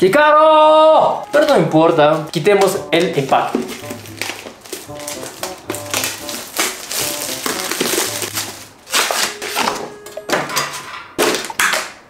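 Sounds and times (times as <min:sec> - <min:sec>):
background music: 0:00.0 - 0:11.3
plastic packaging tearing and crinkling: 0:01.2 - 0:09.9.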